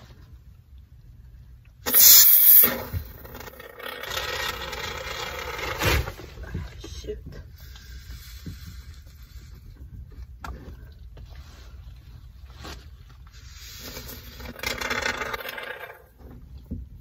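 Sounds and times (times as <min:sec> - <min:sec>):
spray can hiss: 0:01.9 - 0:02.9
fabric scraping and rustling: 0:11.2 - 0:15.5.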